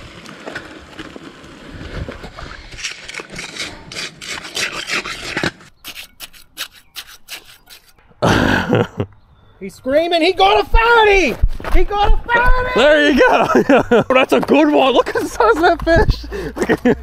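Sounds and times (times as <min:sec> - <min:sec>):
trowel scraping wet concrete: 0:02.3 - 0:08.0.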